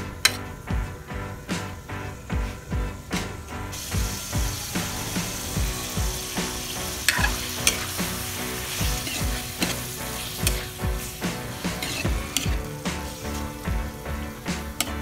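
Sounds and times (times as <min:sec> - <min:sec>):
livers sizzling in a wok: 0:00.0 - 0:15.0
metal ladle clinking and scraping: 0:07.0 - 0:08.0, 0:08.9 - 0:12.7.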